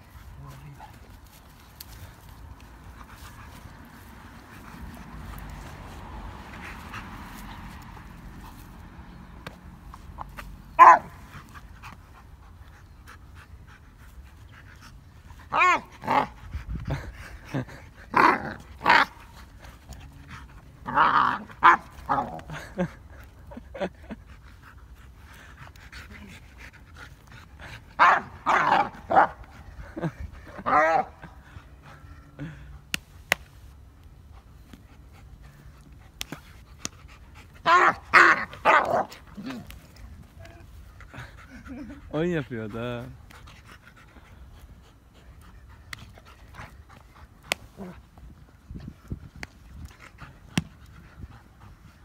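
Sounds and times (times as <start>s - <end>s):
dog yelping: 10.8s - 11.1s, 37.6s - 39.1s
dog growling barks: 10.8s - 11.2s, 15.5s - 16.4s, 18.1s - 19.2s, 20.8s - 22.6s, 28.0s - 29.4s, 30.6s - 31.3s, 37.6s - 39.7s.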